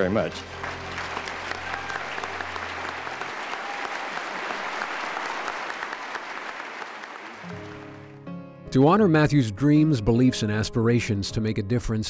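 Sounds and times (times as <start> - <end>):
large audience applauding: 0.0 - 8.2.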